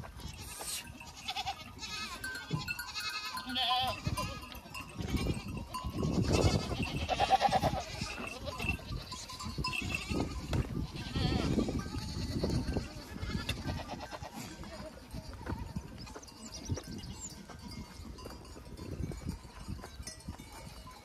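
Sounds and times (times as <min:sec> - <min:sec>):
hooves scuffing and knocking: 0:00.0 - 0:03.4, 0:13.4 - 0:21.0
goats and sheep bleating: 0:00.0 - 0:21.0.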